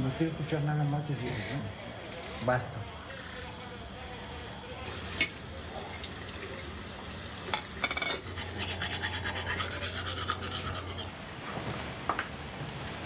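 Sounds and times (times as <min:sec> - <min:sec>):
toothbrush scrubbing teeth: 0:08.0 - 0:11.1.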